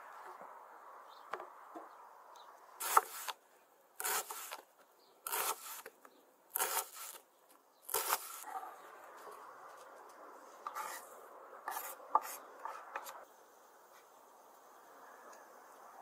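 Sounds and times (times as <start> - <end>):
knife slicing onion on wooden board: 2.8 - 3.4, 4.0 - 4.6, 5.2 - 5.9, 6.5 - 7.2, 7.9 - 8.5, 10.7 - 13.2.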